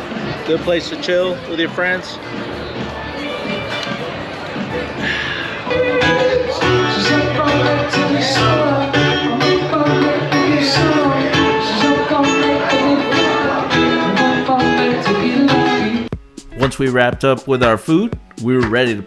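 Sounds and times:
acoustic guitar strummed: 0:03.6 - 0:17.4
man singing: 0:05.6 - 0:08.6.

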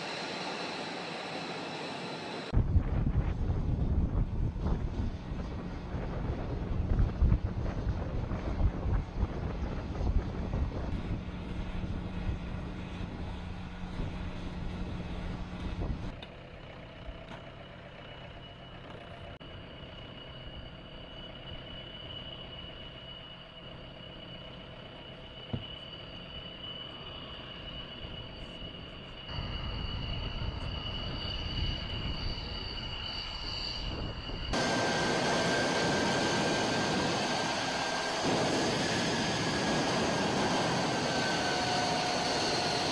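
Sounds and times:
jet aircraft whine: 0:00.0 - 0:42.9
low rumble: 0:02.5 - 0:16.1.

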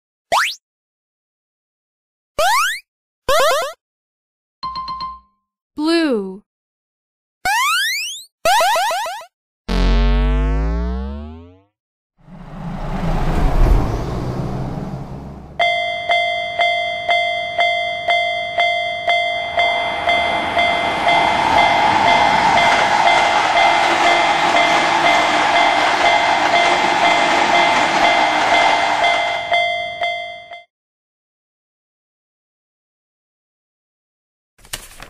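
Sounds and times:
electric train running: 0:12.2 - 0:15.7, 0:16.4 - 0:30.5
truck engine rumble: 0:12.2 - 0:15.7
level-crossing bell ringing: 0:15.6 - 0:30.7.

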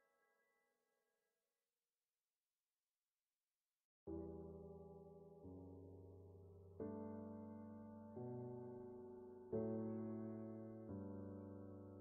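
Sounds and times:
soft piano chords: 0:04.1 - 0:12.0.

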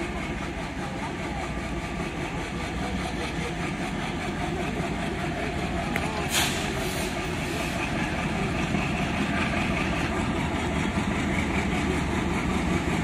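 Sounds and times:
diesel locomotive engines rumbling: 0:00.0 - 0:13.0.

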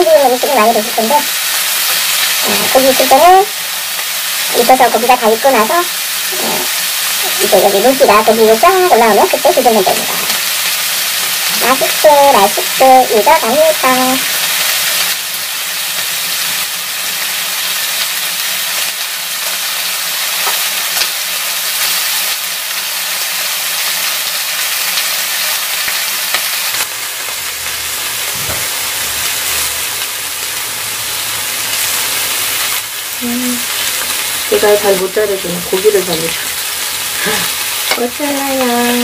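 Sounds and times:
meat sizzling on grill pan: 0:00.0 - 0:39.0.

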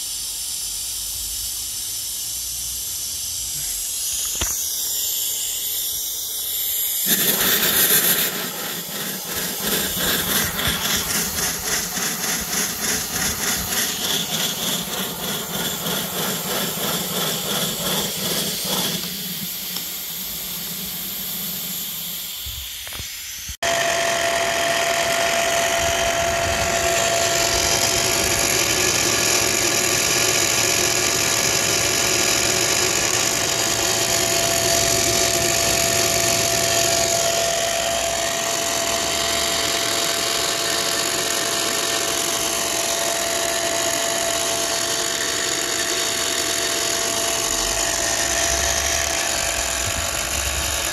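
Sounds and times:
steam locomotive exhaust beating: 0:00.0 - 0:22.8, 0:23.6 - 0:50.9
electric blower whine and hiss: 0:00.0 - 0:50.9.

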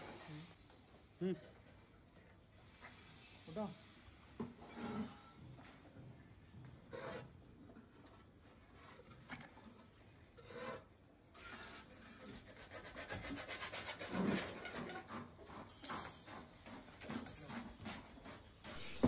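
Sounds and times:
rope rasping over stone: 0:11.4 - 0:15.6.

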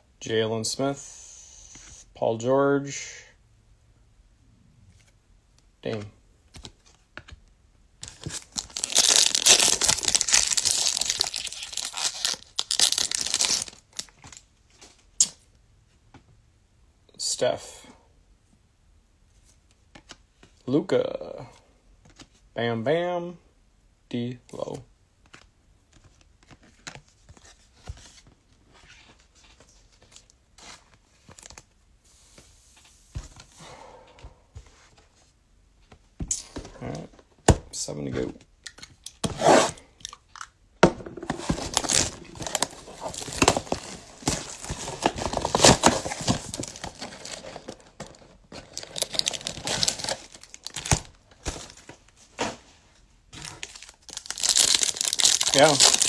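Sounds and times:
foil wrapper tearing and crinkling: 0:08.2 - 0:14.1, 0:41.5 - 0:51.5, 0:53.4 - 0:56.0.

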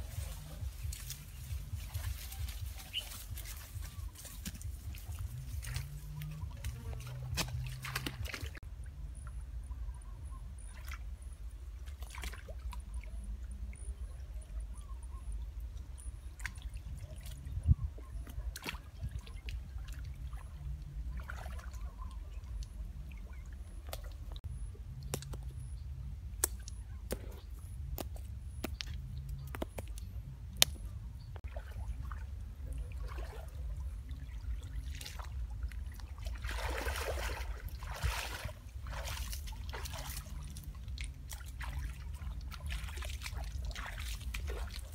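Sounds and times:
water splashes: 0:00.0 - 0:08.6, 0:10.6 - 0:14.7, 0:16.2 - 0:24.5, 0:31.4 - 0:44.9
water sloshing and trickling: 0:00.0 - 0:09.5, 0:10.3 - 0:25.7, 0:30.6 - 0:44.9
low rumble: 0:00.0 - 0:11.8.

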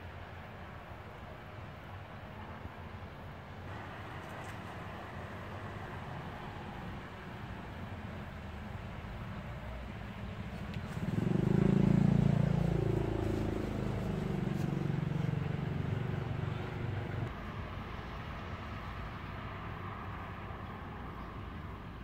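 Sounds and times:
vehicle engine passing by: 0:10.2 - 0:17.3.

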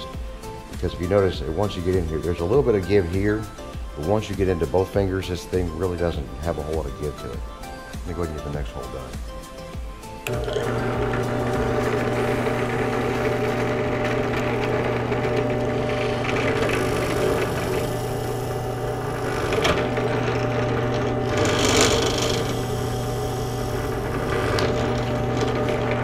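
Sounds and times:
drill bit cutting plastic pipe: 0:10.2 - 0:26.0
drill press motor hum: 0:10.2 - 0:26.0.

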